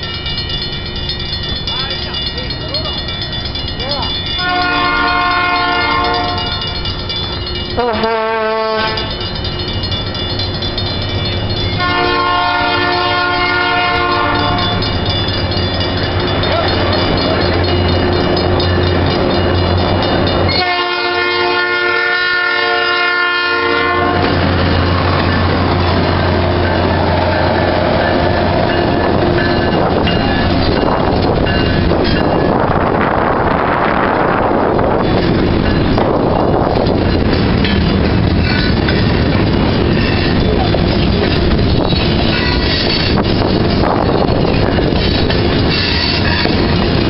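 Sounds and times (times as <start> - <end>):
locomotive air horn blasts: 4.4 - 6.6, 7.8 - 9.1, 11.8 - 14.7, 20.5 - 24.3.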